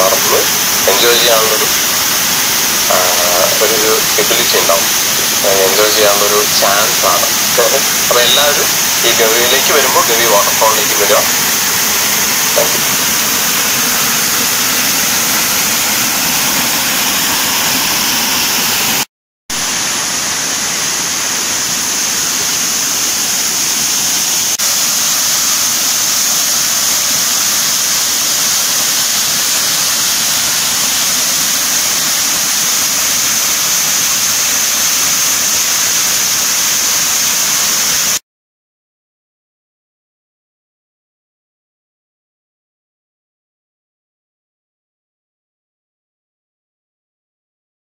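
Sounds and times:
waterfall rushing: 0:00.0 - 0:19.0, 0:19.6 - 0:38.2.

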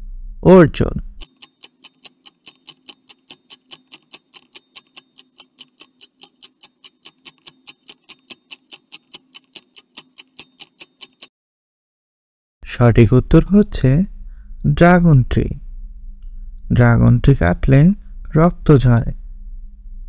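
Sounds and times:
fast clock ticking: 0:01.2 - 0:11.3.

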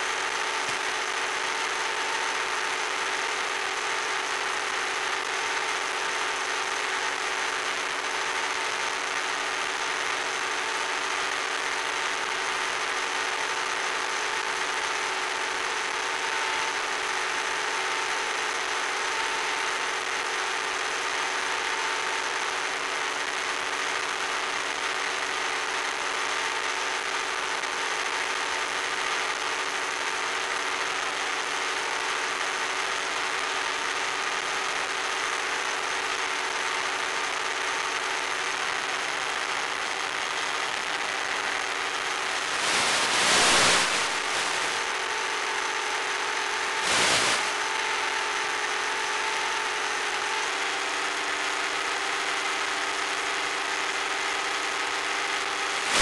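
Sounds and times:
model plane motor and propeller drone: 0:00.0 - 0:56.0
wind rush hiss: 0:42.1 - 0:45.0, 0:46.8 - 0:47.6.

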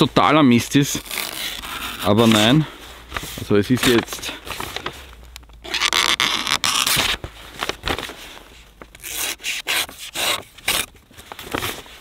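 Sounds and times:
paper rustling: 0:00.9 - 0:12.0
blade slicing paper: 0:09.0 - 0:10.9.

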